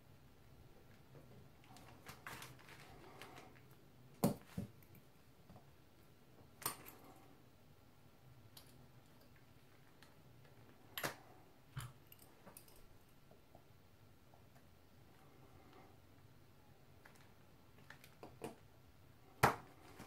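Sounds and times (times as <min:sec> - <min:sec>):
faint handling noise: 0:00.8 - 0:03.8.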